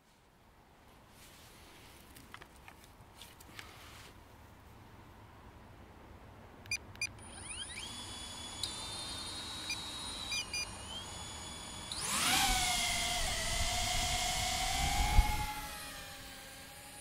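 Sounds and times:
drone propeller whine: 7.4s - 17.0s.

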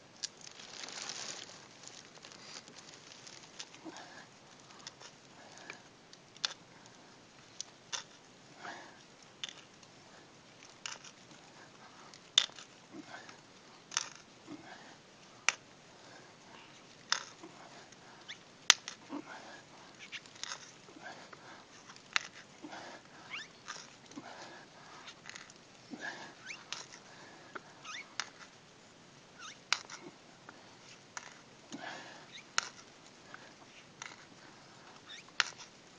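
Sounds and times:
hand tool clicking and creaking in wood: 4.7s - 5.8s, 6.4s - 6.6s, 9.4s - 9.8s, 10.6s - 11.4s, 12.1s - 12.7s, 17.0s - 17.4s, 19.9s - 20.8s, 21.8s - 22.5s, 23.3s - 24.2s, 25.0s - 25.6s, 26.4s - 27.0s, 27.9s - 28.5s, 29.4s - 30.1s, 30.9s - 35.8s.

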